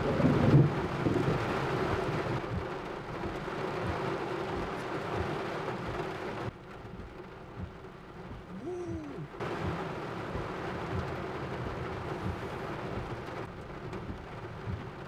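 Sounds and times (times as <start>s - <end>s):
thunder rumbling: 0.0s - 2.7s
steady rain: 0.0s - 15.0s.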